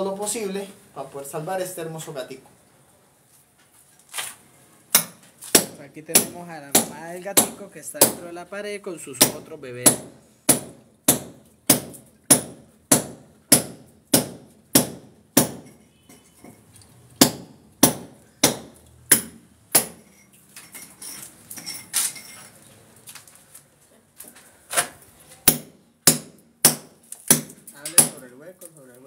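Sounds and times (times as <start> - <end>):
sledgehammer striking steel chisel: 4.9 - 8.3, 9.2 - 16.5, 17.2 - 20.3, 25.4 - 28.2.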